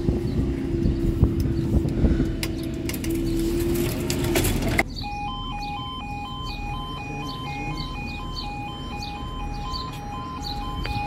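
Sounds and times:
level crossing alarm: 0:04.8 - 0:11.0.

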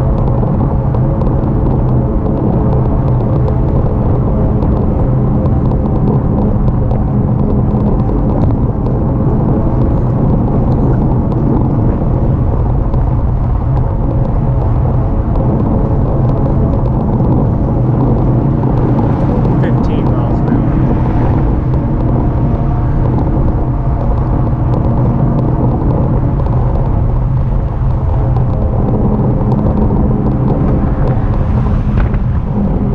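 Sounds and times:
tyre and road noise: 0:00.0 - 0:32.9
wind buffeting microphone: 0:00.0 - 0:32.9.

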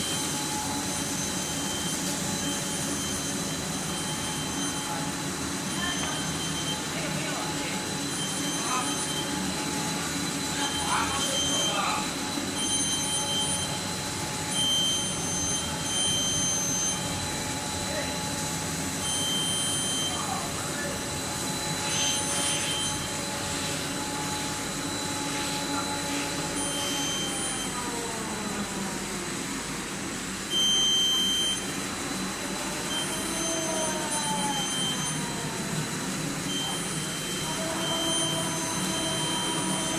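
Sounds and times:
loud high tone: 0:00.0 - 0:09.8, 0:10.5 - 0:13.8, 0:36.5 - 0:39.9
machine running: 0:00.0 - 0:30.5, 0:31.2 - 0:39.9
motor whine gliding in pitch: 0:31.2 - 0:39.9.

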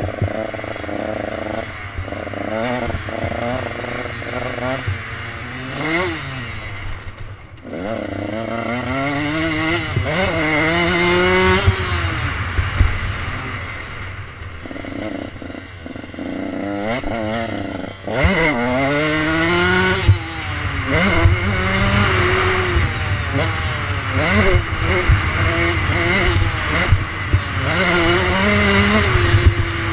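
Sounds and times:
dirt bike engine revving: 0:00.0 - 0:29.9.

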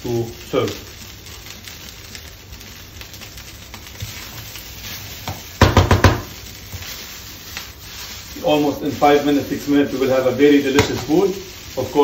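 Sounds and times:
rice sizzling in a wok: 0:00.0 - 0:12.0
spatula knocking on pan: 0:05.2 - 0:06.4.

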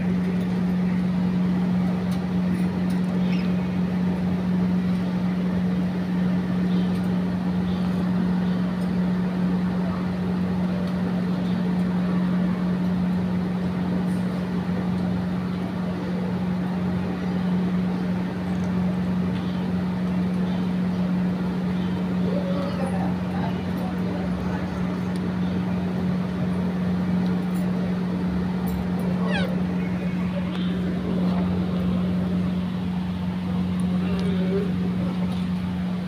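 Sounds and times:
low mechanical hum: 0:00.0 - 0:36.0.

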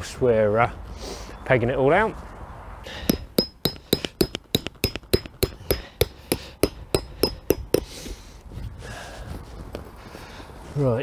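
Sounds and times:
mallet striking tent peg: 0:03.0 - 0:07.9.

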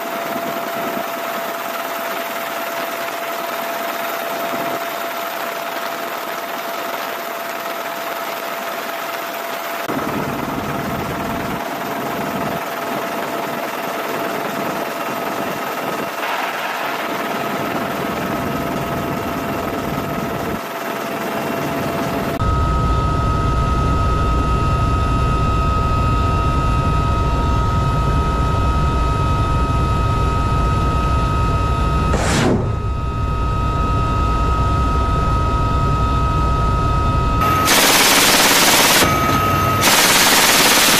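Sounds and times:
helicopter rotor and turbine noise: 0:00.0 - 0:40.9
high-pitched whine: 0:21.8 - 0:40.9.

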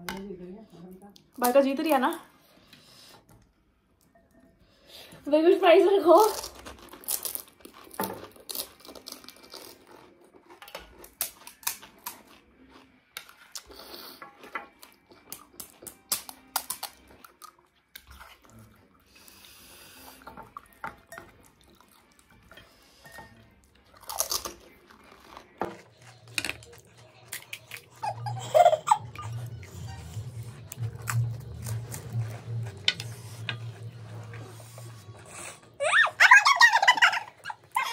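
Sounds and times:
crisp shells crunching: 0:06.3 - 0:10.0.

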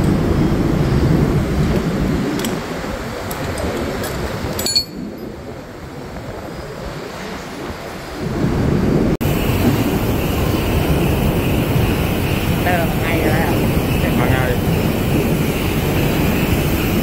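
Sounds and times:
low rumbling noise: 0:00.0 - 0:17.0
light metal clinks: 0:03.5 - 0:05.3.

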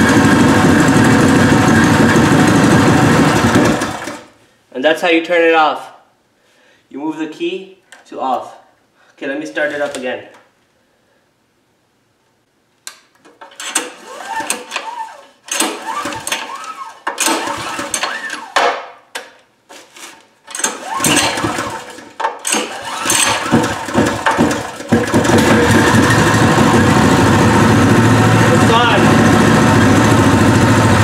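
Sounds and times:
small engine running: 0:00.0 - 0:04.2, 0:14.0 - 0:18.5, 0:20.8 - 0:31.0
recoil starter pulls: 0:00.2 - 0:04.3, 0:13.4 - 0:18.6, 0:20.5 - 0:31.0.

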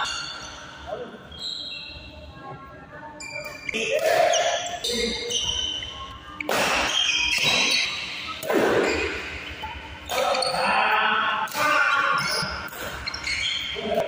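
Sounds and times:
shoes squeaking on court floor: 0:00.0 - 0:02.1, 0:03.2 - 0:10.6, 0:12.1 - 0:14.0
rackets hitting shuttlecock: 0:06.4 - 0:09.2.

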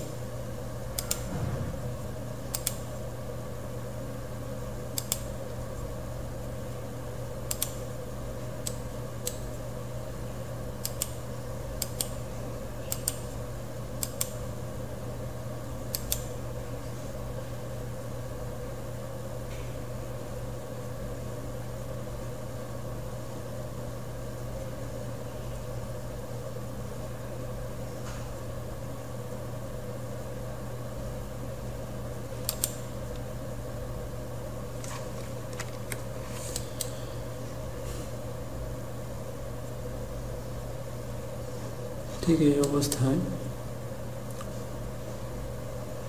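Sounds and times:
steady low hum: 0:00.0 - 0:46.0
computer mouse clicking: 0:01.0 - 0:01.2, 0:02.5 - 0:02.8, 0:05.0 - 0:05.3, 0:07.5 - 0:07.8, 0:10.8 - 0:11.2, 0:11.8 - 0:12.2, 0:12.9 - 0:13.2, 0:14.0 - 0:14.4, 0:15.9 - 0:16.3, 0:32.4 - 0:32.8.

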